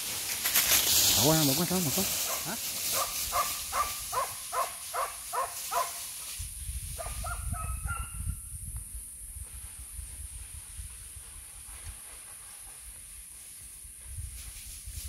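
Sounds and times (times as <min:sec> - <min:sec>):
dogs barking: 0:02.2 - 0:06.0, 0:07.0 - 0:08.2.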